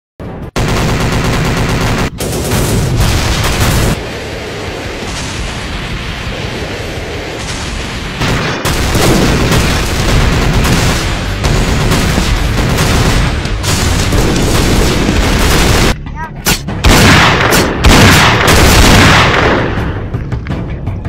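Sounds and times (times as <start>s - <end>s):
gunfire: 0.6s - 4.1s, 7.4s - 20.0s
explosions: 1.9s - 20.1s.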